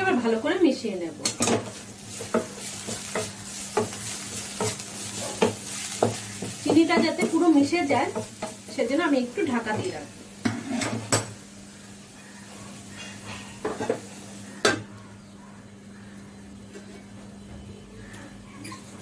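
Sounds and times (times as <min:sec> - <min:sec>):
greens sizzling in pan: 0:00.0 - 0:14.8
utensil knocking on pan: 0:01.2 - 0:08.8.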